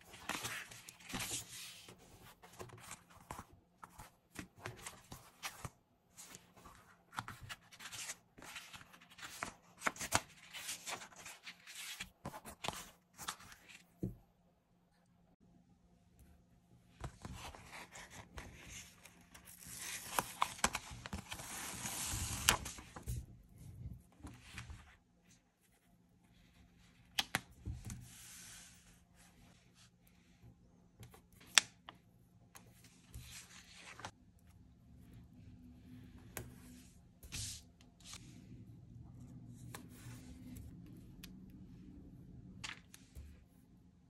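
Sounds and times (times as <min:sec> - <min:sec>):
paper rustling: 0:00.0 - 0:13.8.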